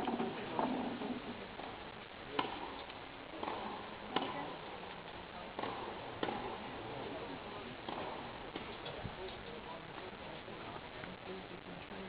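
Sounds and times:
tennis ball struck with rackets: 2.4 - 2.8, 3.4 - 4.6, 5.6 - 6.6, 7.9 - 8.7.

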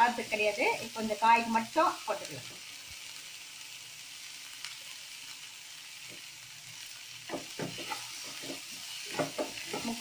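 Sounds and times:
vegetables sizzling in hot oil: 0.0 - 10.0.

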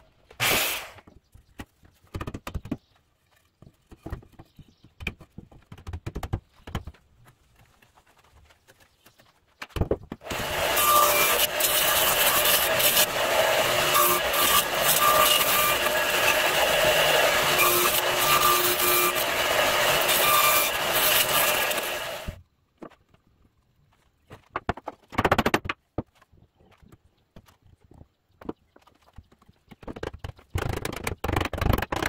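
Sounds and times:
radial arm saw cutting wood: 10.2 - 22.4.

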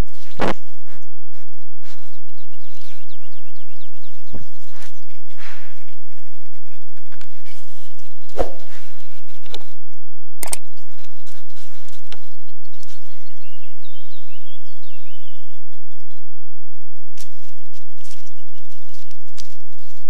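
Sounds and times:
songbird singing: 0.0 - 20.0
knocks against camera: 8.3 - 8.8.

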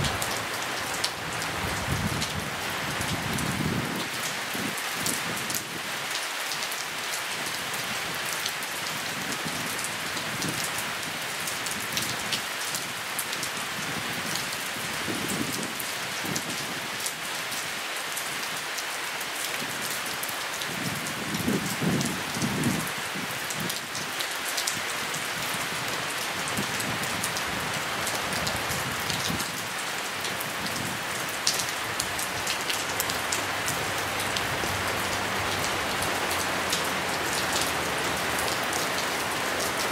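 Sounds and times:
steady rain falling: 0.0 - 39.9
raindrops ticking close by: 18.4 - 39.9.

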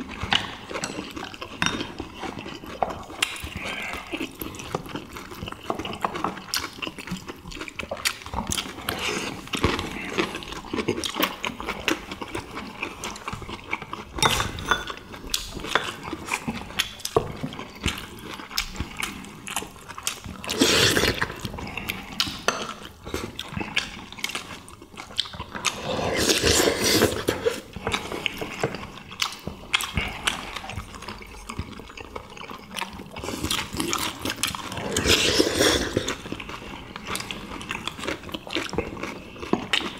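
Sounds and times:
people chewing: 0.0 - 39.9
chopsticks and spoons clicking on bowls: 14.1 - 16.1
slurping soup: 20.1 - 24.5, 25.4 - 28.9, 33.1 - 38.2.

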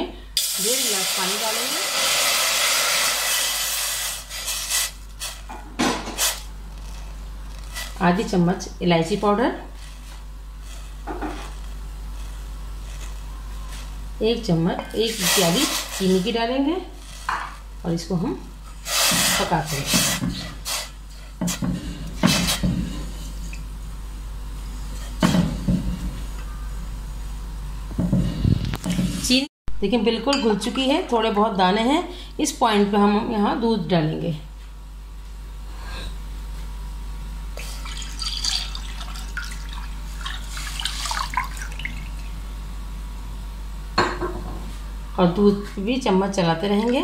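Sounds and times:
steady low hum: 0.0 - 47.0
milk pouring into a pot: 37.7 - 42.4.

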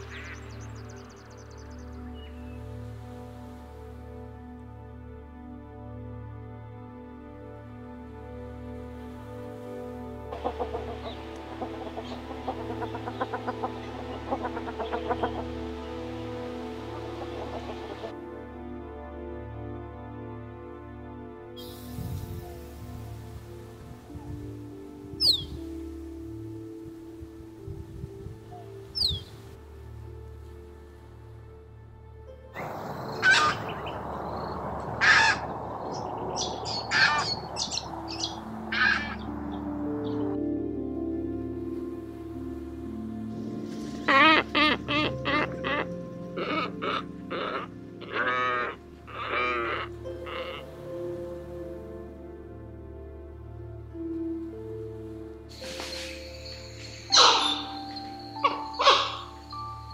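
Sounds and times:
small birds chirping: 0.0 - 2.9, 10.4 - 18.1, 25.1 - 25.9, 28.4 - 29.6, 32.6 - 40.4, 55.5 - 59.9
background hiss: 0.0 - 59.9
soft background music: 0.0 - 59.9
duck calling: 10.3 - 15.8, 16.9 - 18.1, 32.6 - 34.0, 35.0 - 39.3, 44.1 - 50.8, 57.1 - 59.7
ibis harsh croaks: 32.6 - 39.6, 44.1 - 50.7, 55.6 - 59.9.

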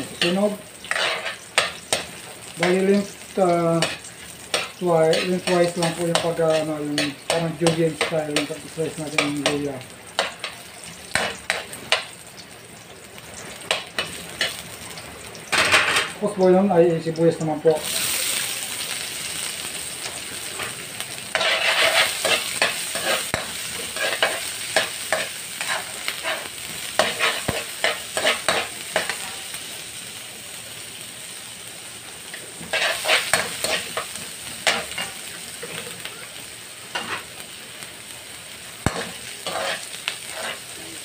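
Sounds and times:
vegetables sizzling in hot oil: 0.0 - 41.0
metal spatula scraping a wok: 0.1 - 2.2, 3.8 - 7.4, 21.3 - 29.4, 32.6 - 35.9, 36.9 - 37.3, 38.9 - 41.0.

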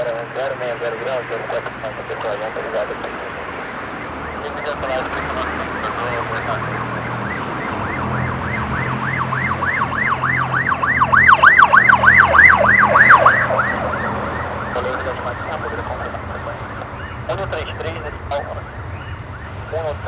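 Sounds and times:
siren yelping: 0.0 - 20.0.

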